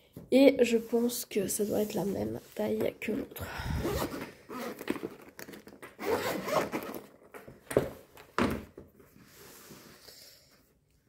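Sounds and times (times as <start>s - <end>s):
zipper rasp: 3.7s - 5.0s, 6.0s - 7.1s.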